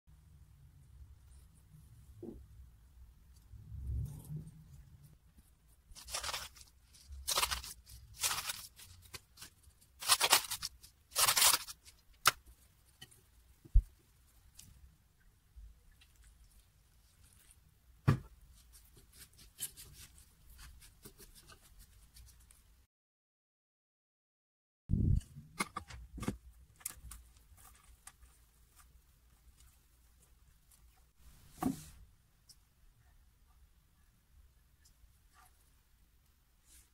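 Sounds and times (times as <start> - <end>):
crunchy rustles of potting mix: 3.2 - 15.0, 15.7 - 22.8, 25.1 - 32.1
soil crumbling and rustling: 6.0 - 12.3
small clicks and scrapes: 25.2 - 31.2.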